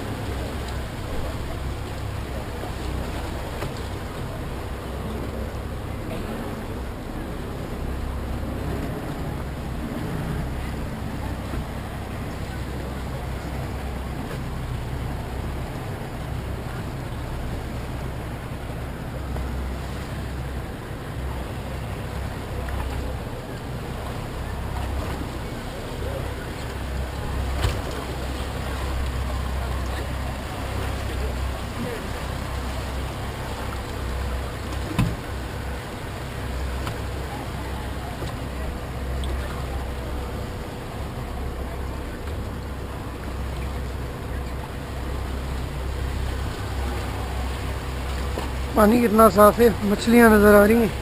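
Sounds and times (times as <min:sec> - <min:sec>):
rushing water: 0:00.0 - 0:51.0
speedboat engine running: 0:00.0 - 0:51.0
wind: 0:00.0 - 0:51.0
sharp thump: 0:34.9 - 0:35.2.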